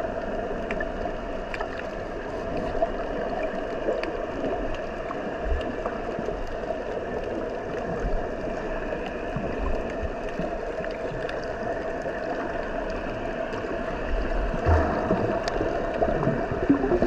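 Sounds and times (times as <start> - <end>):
muffled underwater rush: 0.0 - 17.0
soft low thumps: 14.6 - 17.0.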